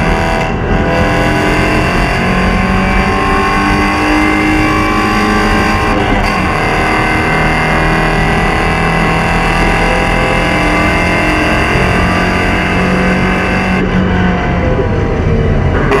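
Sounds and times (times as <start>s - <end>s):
race car engine running hard: 0.0s - 16.0s.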